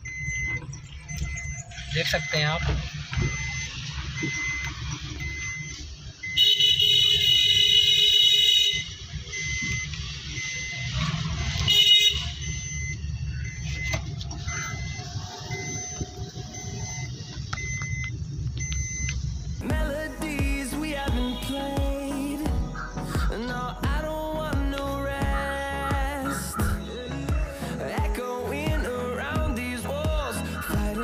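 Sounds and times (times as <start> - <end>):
short electronic beeps: 0.0 - 6.8, 8.7 - 19.7
van engine and road rumble: 0.0 - 31.0
car horn: 6.3 - 9.1, 11.0 - 12.5, 21.0 - 22.3.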